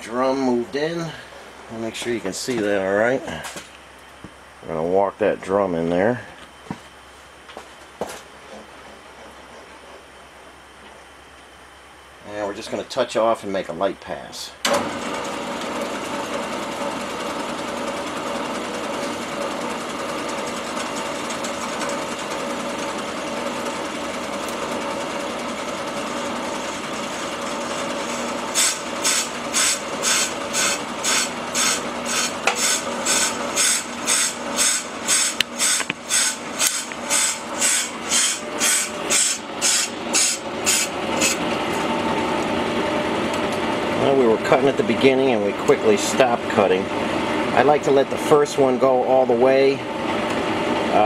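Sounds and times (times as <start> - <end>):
brake lathe running: 14.6 - 51.0
cutting bit scraping metal: 28.5 - 41.4.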